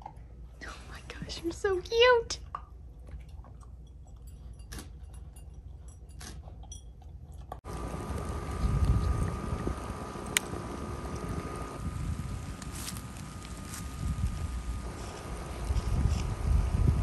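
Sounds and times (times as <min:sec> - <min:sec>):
wind rumbling on microphone: 0:07.7 - 0:17.0.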